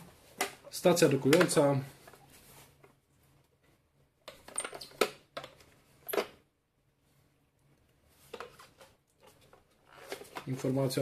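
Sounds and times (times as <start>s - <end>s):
packaging rustles and scrapes: 8.2s - 10.7s.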